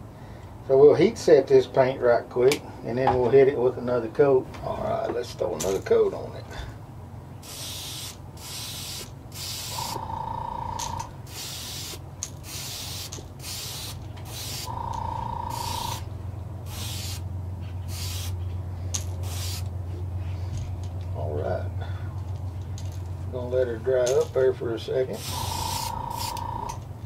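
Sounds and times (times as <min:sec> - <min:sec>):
low steady hum: 0:00.0 - 0:27.0
airbrush spraying hiss: 0:07.4 - 0:10.0, 0:10.8 - 0:17.2, 0:17.8 - 0:18.4, 0:19.2 - 0:19.7, 0:25.2 - 0:26.4
steady tone: 0:14.6 - 0:16.4.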